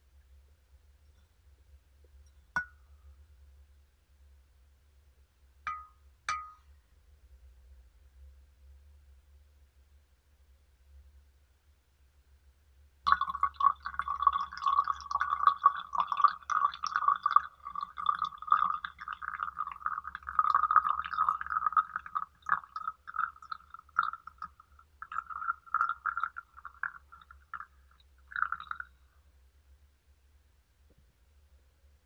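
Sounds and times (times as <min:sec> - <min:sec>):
water pouring into glass pitcher: 0:13.1 - 0:29.0.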